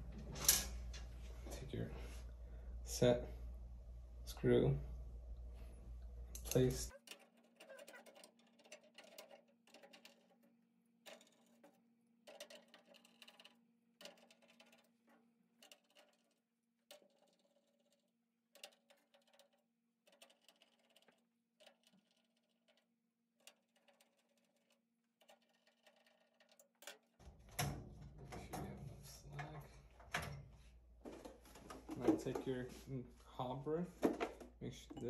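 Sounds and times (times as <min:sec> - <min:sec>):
low steady hum: 0:00.0 - 0:06.9.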